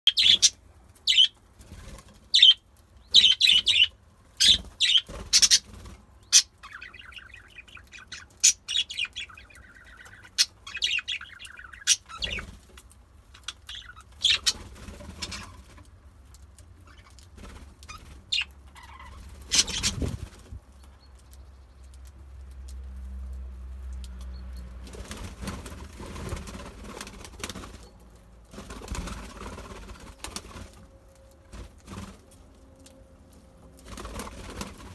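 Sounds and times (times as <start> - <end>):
budgerigars chirping: 0.1 - 1.4, 2.3 - 12.5, 13.4 - 15.6, 17.9 - 20.1
wings fluttering: 0.1 - 21.3, 24.7 - 34.9.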